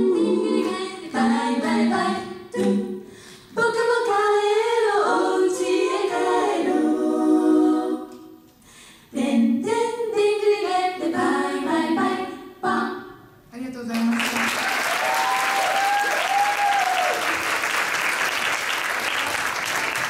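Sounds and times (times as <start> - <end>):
a cappella group singing: 0.0 - 13.4.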